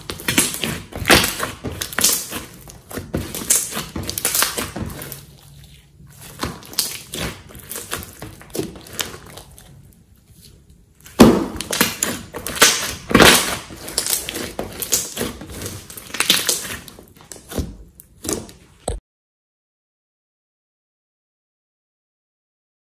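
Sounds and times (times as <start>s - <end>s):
slime squishing and popping: 0.0s - 10.0s, 11.0s - 19.0s.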